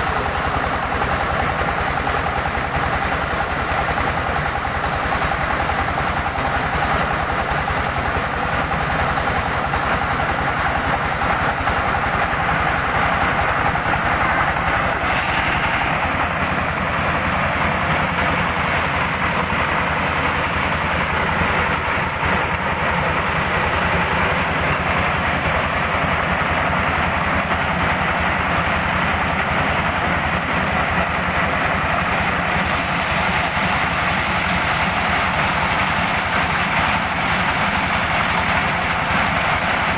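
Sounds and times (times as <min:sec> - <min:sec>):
corn sheller running: 0:00.0 - 0:39.9.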